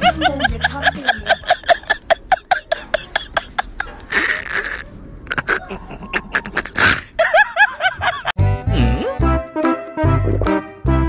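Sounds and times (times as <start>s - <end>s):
woman giggling: 0.0s - 8.4s.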